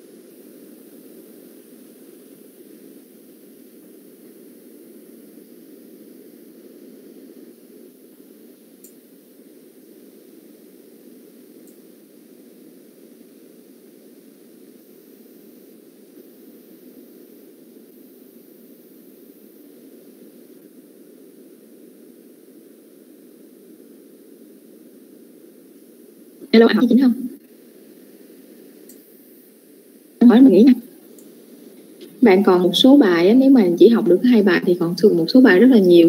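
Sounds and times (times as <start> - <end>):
low hiss on call audio: 0.0 - 36.0
faint ticks: 8.8 - 9.1, 11.6 - 11.8, 28.8 - 29.1, 31.1 - 32.2.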